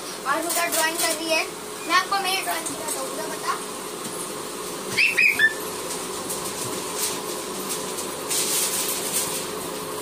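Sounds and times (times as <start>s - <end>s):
steady machine hum: 0.0s - 10.0s
paper rustling: 5.8s - 9.6s.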